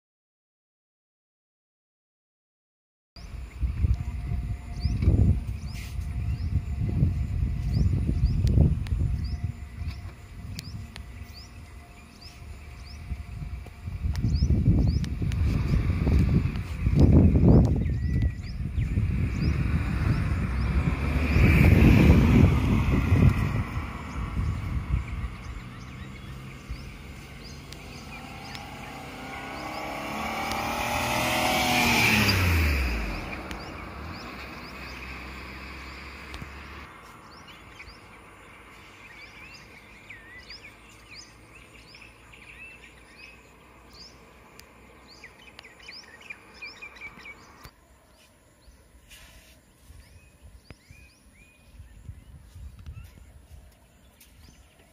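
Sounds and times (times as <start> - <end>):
birds chirping: 3.2 - 54.9
car driving past: 18.7 - 47.7.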